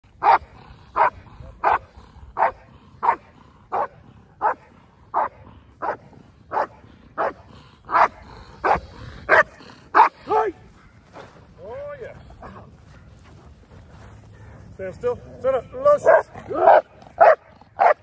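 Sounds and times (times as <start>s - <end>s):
dog barking: 0.2s - 1.8s, 2.4s - 11.0s, 16.0s - 18.0s.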